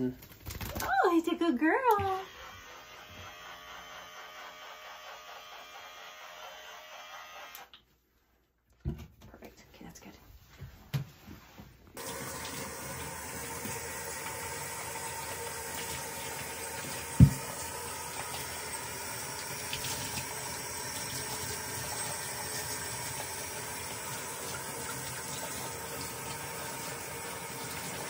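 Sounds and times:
tap water running into sink: 0:12.0 - 0:28.0.

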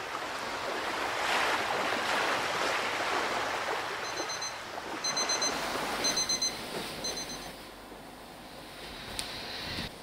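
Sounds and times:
waves breaking on sand: 0:00.0 - 0:07.1
high electronic beep: 0:04.1 - 0:07.5.

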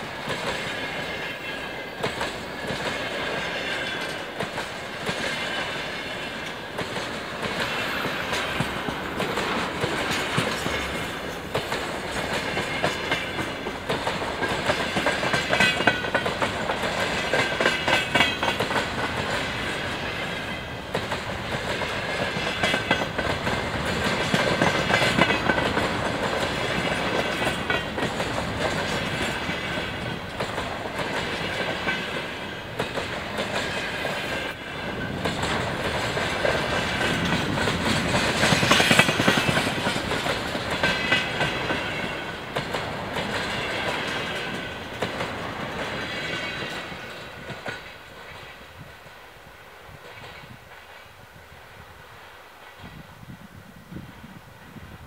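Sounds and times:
train wheels clattering over rail joints: 0:00.0 - 0:48.7.

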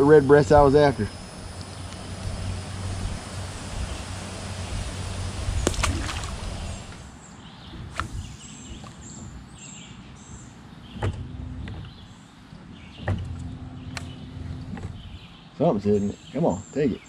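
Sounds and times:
bird chirping: 0:00.0 - 0:17.0
rustling and knocks in a boat: 0:05.5 - 0:09.9, 0:10.8 - 0:15.3
single clicks: 0:13.9 - 0:14.2.

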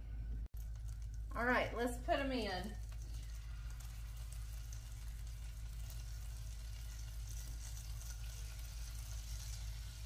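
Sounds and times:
low hum: 0:00.0 - 0:10.0
chicken sizzling in a pan: 0:00.6 - 0:10.0.

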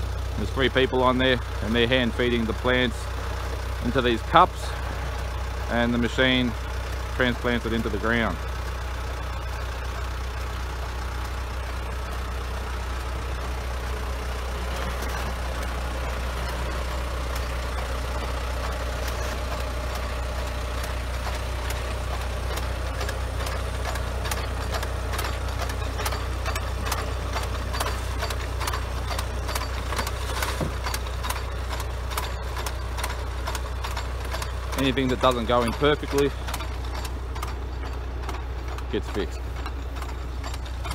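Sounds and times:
tractor diesel engine running: 0:00.0 - 0:40.9
light mechanical clicks and knocks: 0:14.7 - 0:40.9.

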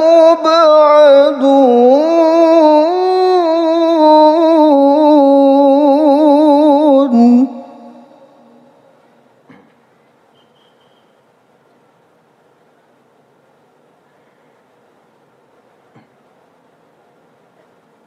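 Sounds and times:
man reciting in sung melody: 0:00.0 - 0:08.8.

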